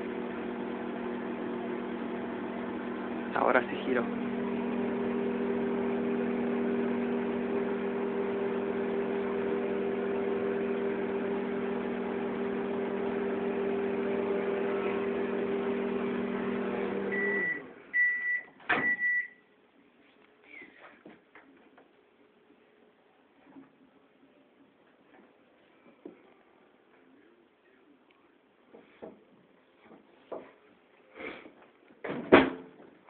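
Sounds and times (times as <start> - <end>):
microwave oven humming: 0.0 - 17.8.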